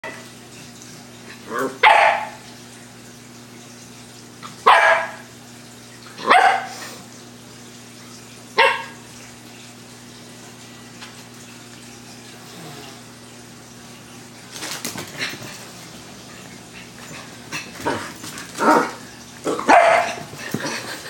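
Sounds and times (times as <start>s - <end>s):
dog barking sharply: 1.8s - 2.4s, 4.6s - 5.2s, 6.2s - 6.8s, 8.6s - 9.0s, 19.6s - 20.2s.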